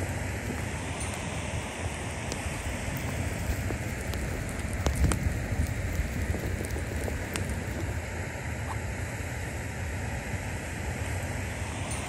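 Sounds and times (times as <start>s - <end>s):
sharp ticks and crackles: 0.0s - 8.1s
rushing wind with low rumble: 0.0s - 12.0s.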